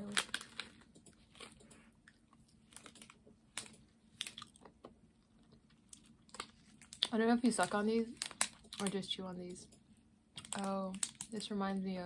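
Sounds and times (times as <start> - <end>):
person chewing candy: 0.0 - 7.2.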